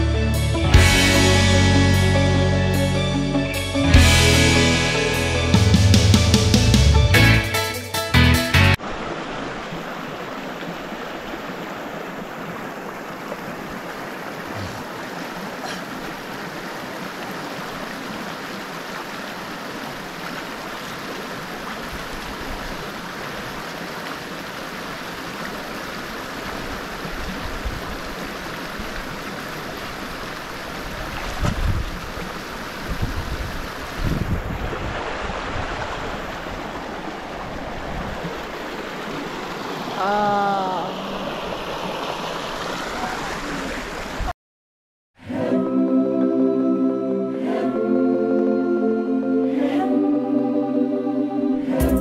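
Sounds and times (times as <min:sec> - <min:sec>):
river water rushing: 0:08.8 - 0:44.3.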